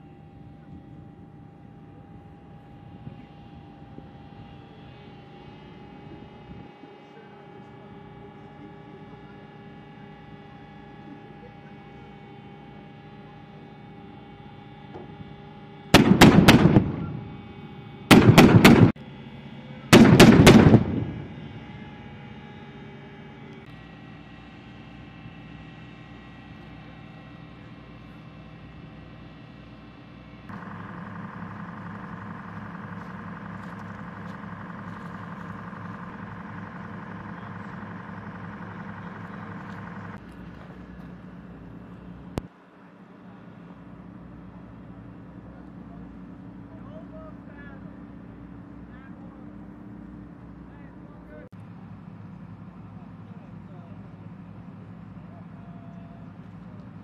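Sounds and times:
engine hum: 0.0 - 57.0
automatic weapon fire: 16.0 - 17.5, 18.1 - 19.0, 19.9 - 21.5.

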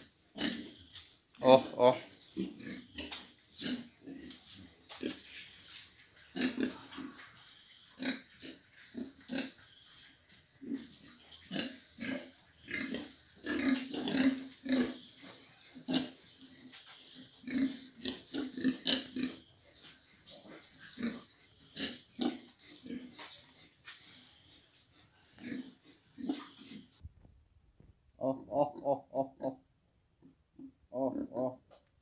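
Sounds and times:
pigs grunting: 0.3 - 0.8, 1.5 - 4.4, 6.3 - 7.4, 8.0 - 9.5, 10.6 - 16.2, 17.2 - 19.5, 20.2 - 27.0, 28.2 - 29.6, 30.6 - 31.6.

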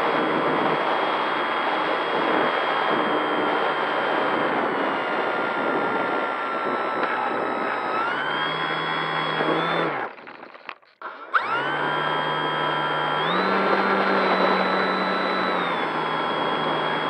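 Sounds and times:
electric model plane motor whining: 2.8 - 10.1, 11.2 - 17.0.

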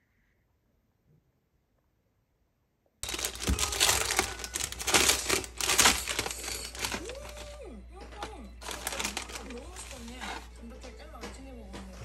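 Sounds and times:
plastic bag crinkling: 3.0 - 10.9.

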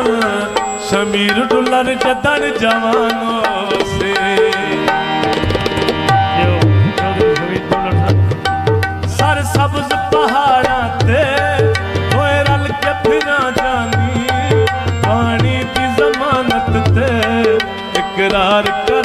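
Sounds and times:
sliding wavering melody: 0.0 - 8.8
hand drums: 0.0 - 19.0
steady held tones: 0.0 - 19.0.

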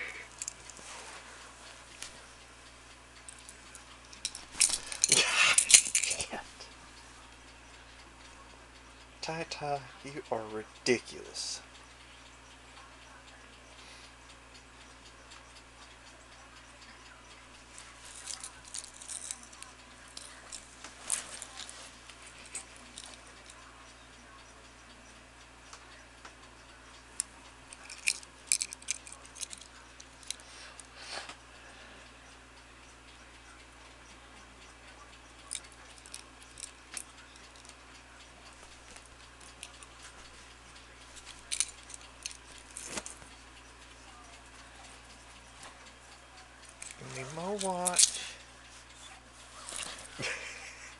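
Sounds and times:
pocket watch ticking: 0.0 - 0.8, 2.4 - 13.4, 14.1 - 31.4, 32.1 - 50.9
metal chain clinking: 4.2 - 6.2, 18.1 - 20.6.

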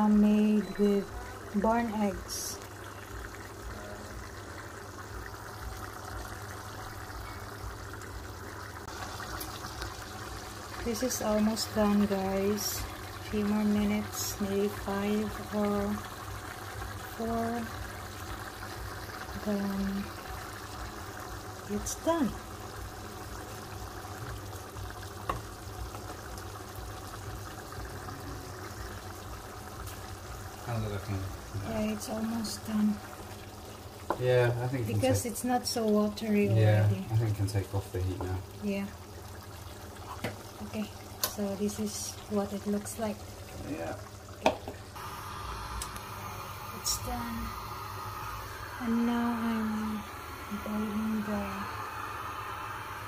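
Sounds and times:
sauce bubbling in a pan: 0.0 - 53.0
low steady hum: 26.8 - 53.0
low hum: 45.0 - 53.0.

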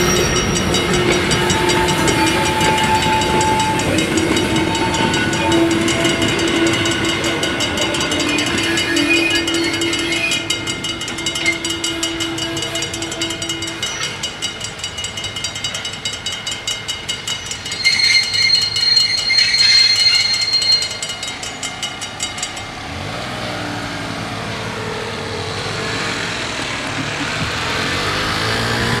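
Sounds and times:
steady high tone: 0.0 - 22.8
level-crossing bells ringing: 0.0 - 24.7
car engine accelerating: 22.6 - 29.0.

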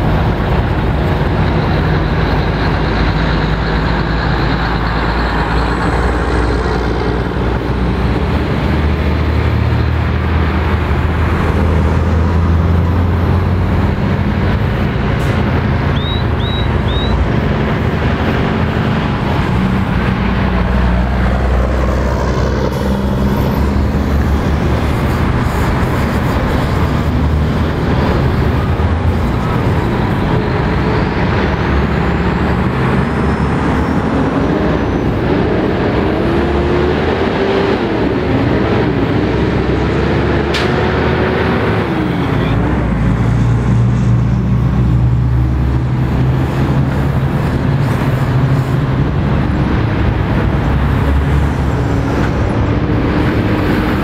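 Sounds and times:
lorries and cars passing: 0.0 - 54.0
tyre and road noise: 0.0 - 54.0
high chirps: 15.9 - 17.2.

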